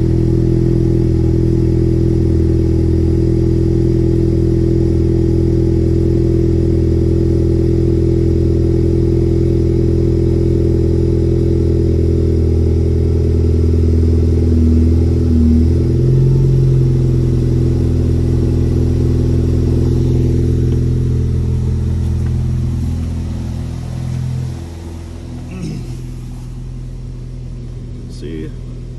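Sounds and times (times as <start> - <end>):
car engine idling: 0.0 - 28.9.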